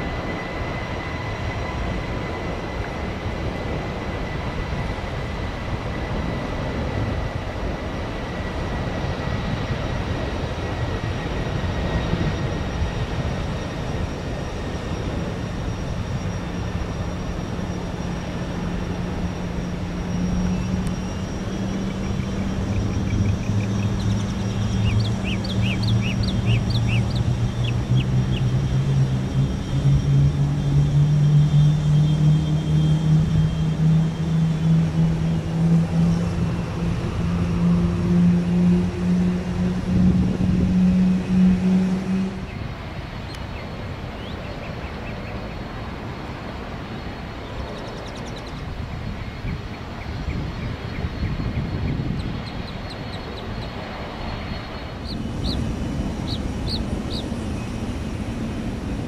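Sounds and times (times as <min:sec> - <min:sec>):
jet engines at takeoff: 0:00.0 - 0:59.0
jet rumble: 0:00.0 - 0:59.0
birds chirping: 0:19.2 - 0:37.6, 0:40.7 - 0:46.2, 0:46.8 - 0:59.0.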